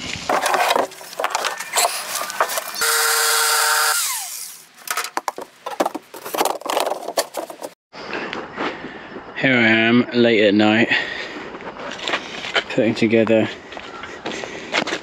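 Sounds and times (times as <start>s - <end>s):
tools clattering: 0.3s - 2.8s, 4.8s - 7.8s
power saw motor running: 1.7s - 4.6s
wood knocking and clattering: 4.8s - 7.8s.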